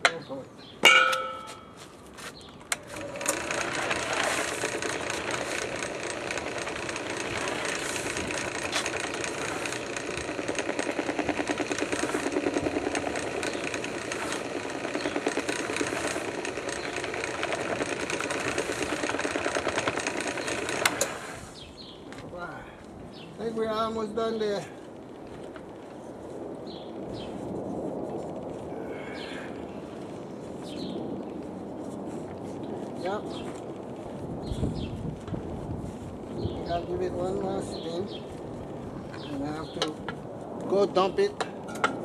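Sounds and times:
drill press mixing dough: 2.7 - 21.3.

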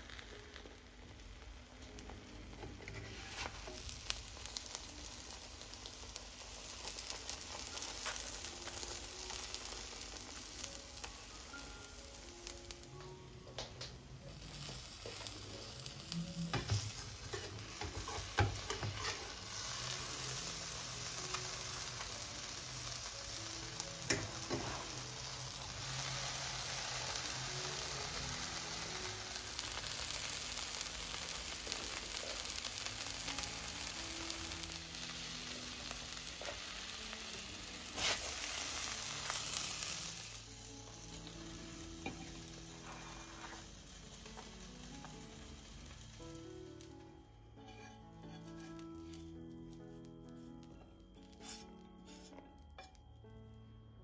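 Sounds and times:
egg sizzling in a frying pan: 0.0 - 53.0.

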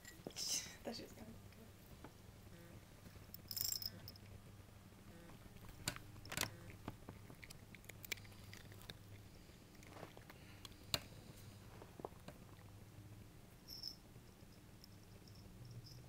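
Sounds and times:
cat crunching treats: 5.5 - 11.2.

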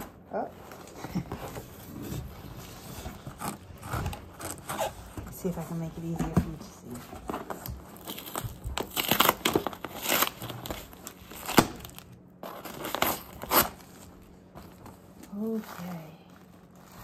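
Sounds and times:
paper or tape crinkling and tearing: 6.9 - 17.0.

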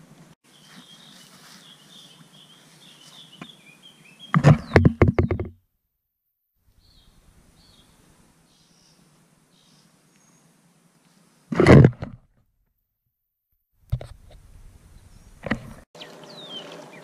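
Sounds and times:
faint bird chirps: 0.5 - 5.4, 6.7 - 10.5.

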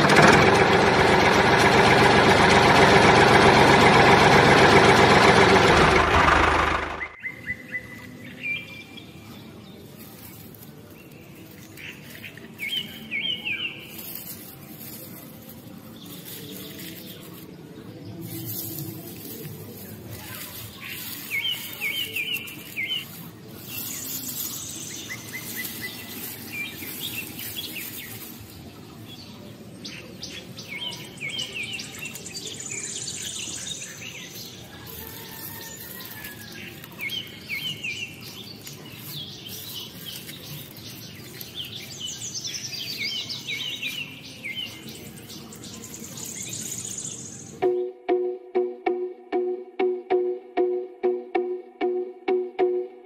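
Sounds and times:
birds chirping and singing: 6.9 - 47.8.

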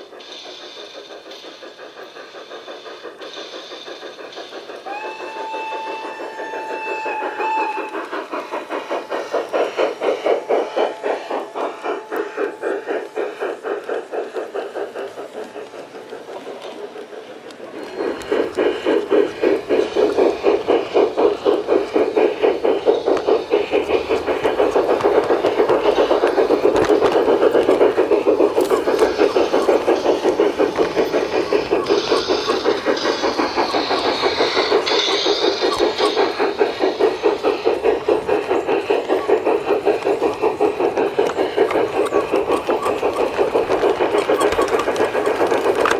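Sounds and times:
model train running on track: 0.0 - 45.9
rhythmic steam chuffing: 0.0 - 45.9
steam locomotive whistle: 4.8 - 8.0.

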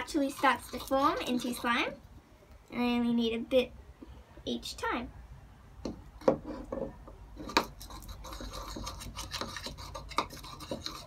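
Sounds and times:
spoon scraping slime in bowl: 0.0 - 1.9, 6.3 - 11.0.

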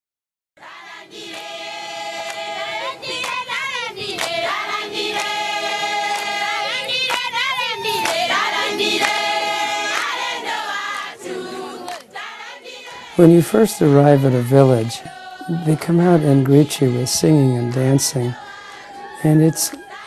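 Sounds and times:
group of voices singing: 0.6 - 20.0
high warbling cries: 7.4 - 8.7.

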